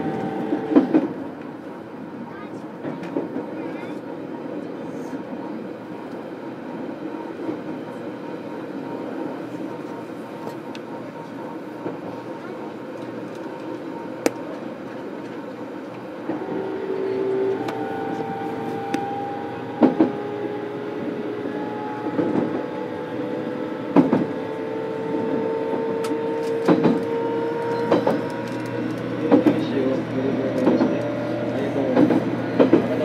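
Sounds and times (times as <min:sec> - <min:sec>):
electric train motor whine: 0:00.0 - 0:01.0, 0:16.0 - 0:29.4.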